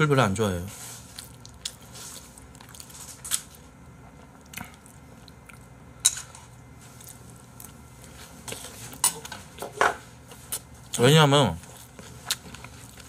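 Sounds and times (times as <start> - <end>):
quiet chewing: 0.8 - 9.5, 11.6 - 13.0.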